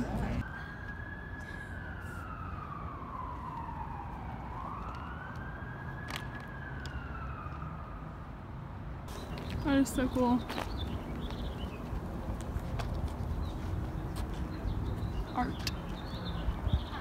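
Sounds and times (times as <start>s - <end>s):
low traffic rumble: 0.0s - 17.0s
siren wailing: 0.4s - 8.2s.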